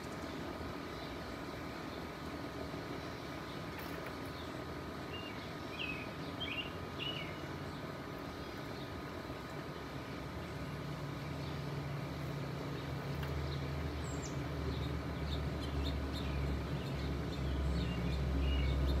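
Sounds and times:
distant jet engine rumble: 0.0 - 19.0
small birds chirping: 0.0 - 19.0.

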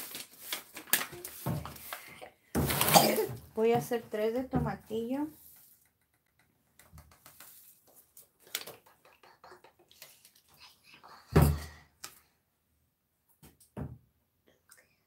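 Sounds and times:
paper seed packet crinkling: 0.0 - 2.1.

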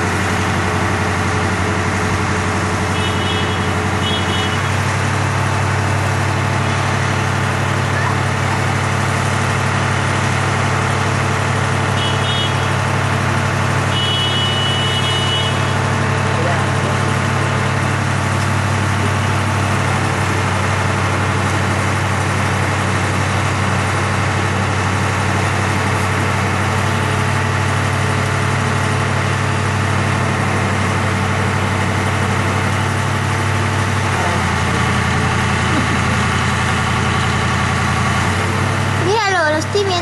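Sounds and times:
truck engine idling: 0.0 - 40.0.

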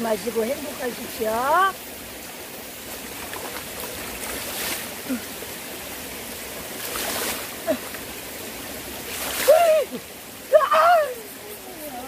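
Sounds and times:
stream running over rocks: 0.0 - 12.0
poured water splashing: 3.0 - 5.2, 6.6 - 10.1.

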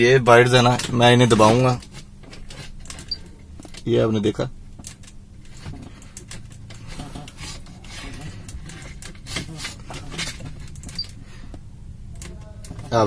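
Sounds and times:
steady low hum: 0.0 - 13.0
metal casing scraping and clicking: 0.5 - 3.9, 4.8 - 11.2.

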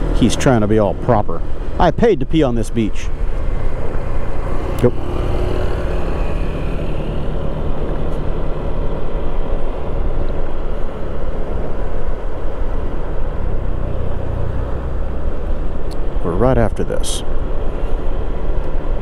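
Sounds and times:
steady rushing noise: 0.0 - 19.0
scooter engine running: 3.1 - 12.4.

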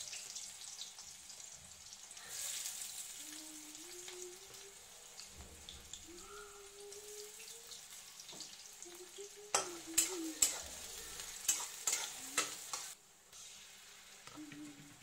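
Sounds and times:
onion sizzling in hot oil: 0.0 - 15.0
spatula scraping a metal pan: 10.0 - 13.0.

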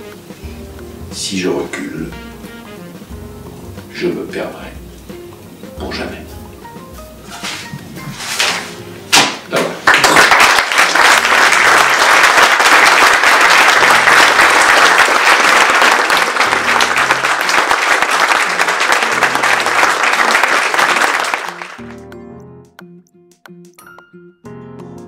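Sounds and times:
soft music: 0.0 - 9.9, 16.0 - 25.0
audience applause: 9.8 - 22.0.

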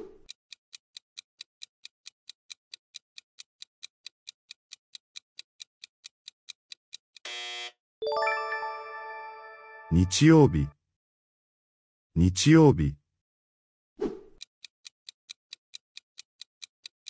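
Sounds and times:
clock ticking: 0.1 - 7.2, 14.4 - 17.0.

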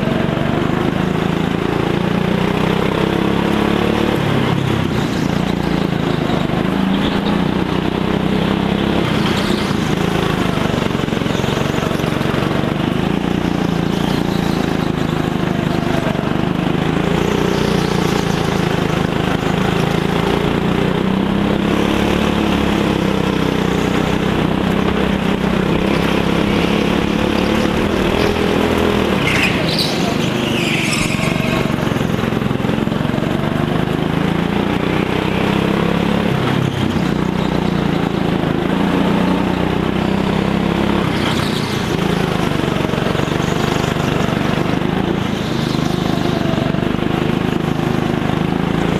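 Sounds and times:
go-kart engine running: 0.0 - 48.9
brief high squeal: 29.3 - 31.7.

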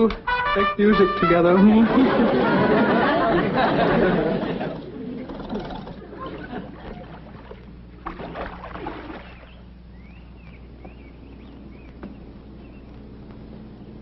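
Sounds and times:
low steady hum: 0.0 - 14.0
water splashing: 6.0 - 9.7
faint bird chirps: 9.1 - 14.0.

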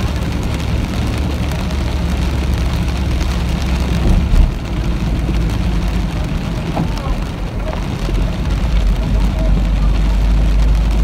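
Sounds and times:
rain hiss: 0.0 - 11.0
road and tyre rumble: 0.0 - 11.0
low thump: 4.0 - 4.6.

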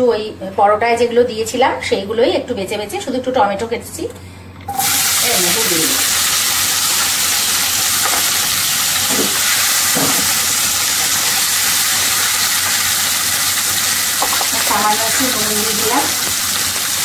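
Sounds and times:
vegetables sizzling in hot oil: 4.7 - 17.0.

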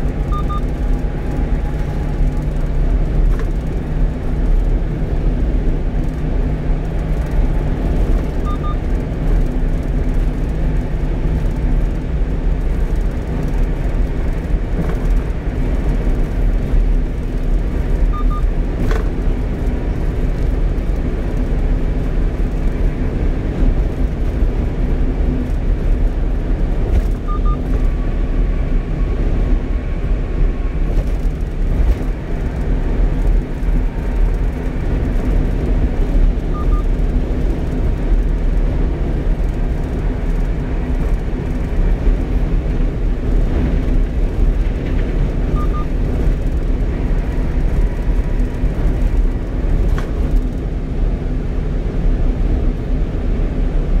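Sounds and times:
truck engine and road rumble: 0.0 - 54.0.

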